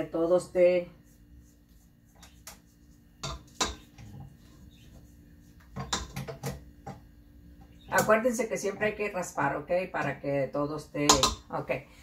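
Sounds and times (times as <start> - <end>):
spatula knocking on metal: 3.2 - 3.9, 5.8 - 7.0, 11.0 - 11.4.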